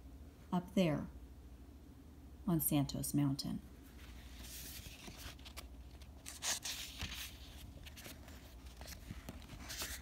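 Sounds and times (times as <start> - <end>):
book page turning: 4.0 - 10.0.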